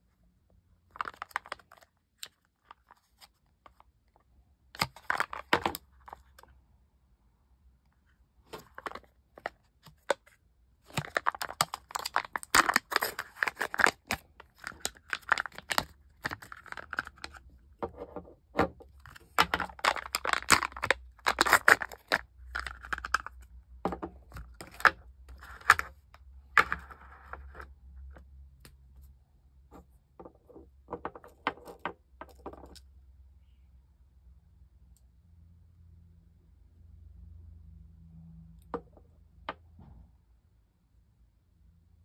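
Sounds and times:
plastic packaging crackling and clicking: 0:01.0 - 0:03.0, 0:04.8 - 0:06.4, 0:10.9 - 0:17.5, 0:19.0 - 0:23.4.

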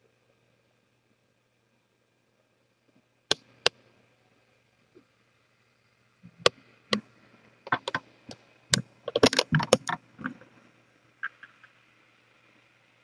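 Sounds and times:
sharp clicks and rattling knocks: 0:07.7 - 0:08.0, 0:08.8 - 0:10.4.

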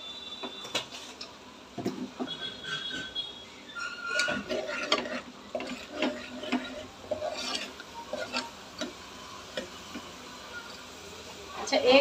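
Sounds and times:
spoon scraping metal pot: 0:02.2 - 0:10.1
spice paste sizzling in oil: 0:03.6 - 0:12.0.

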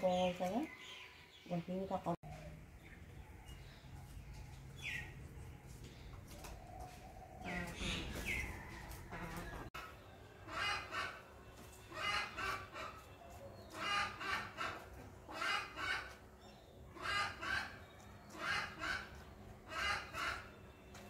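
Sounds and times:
hen clucking: 0:06.4 - 0:20.8.

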